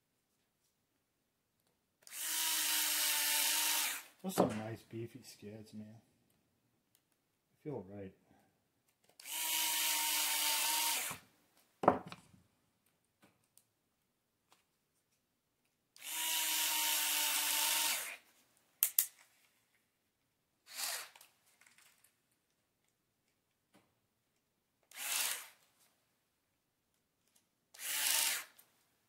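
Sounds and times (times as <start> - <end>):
electric screwdriver motor running: 2.0 - 4.1, 9.2 - 11.2, 16.0 - 18.2, 20.7 - 21.2, 24.9 - 25.6, 27.8 - 28.6.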